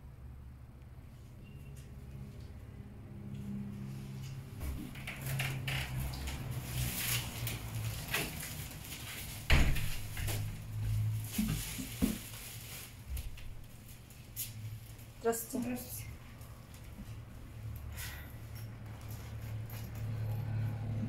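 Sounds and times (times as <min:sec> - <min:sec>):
film rustling and scraping: 0:04.1 - 0:15.1.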